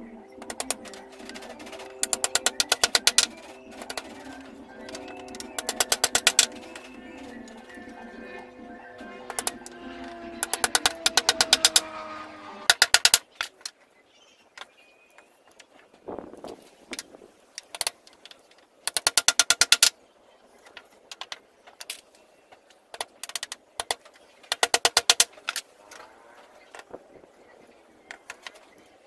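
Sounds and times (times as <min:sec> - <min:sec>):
hammer driving nails into wood: 0:00.4 - 0:07.3, 0:12.7 - 0:13.7, 0:18.9 - 0:19.9, 0:22.9 - 0:25.6.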